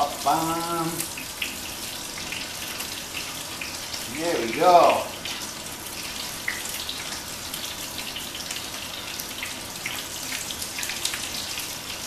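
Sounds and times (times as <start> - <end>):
fish sizzling in a frying pan: 0.0 - 12.0.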